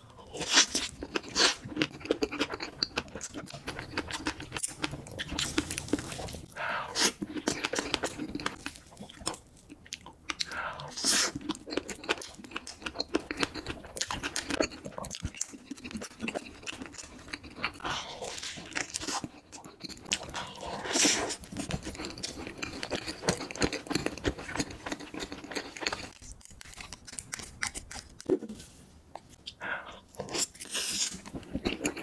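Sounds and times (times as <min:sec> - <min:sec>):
chewing and wet mouth clicks: 0:21.6 - 0:28.3.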